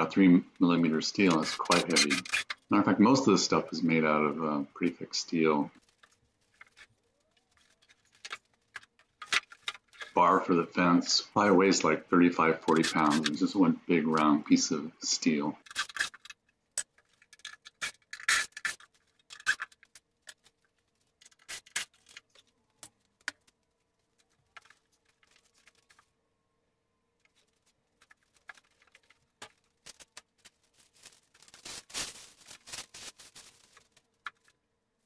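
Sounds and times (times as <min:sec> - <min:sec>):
parts and packing rustling: 0:01.2 - 0:02.8, 0:05.8 - 0:10.5, 0:12.6 - 0:13.4, 0:15.6 - 0:26.3, 0:27.1 - 0:35.0.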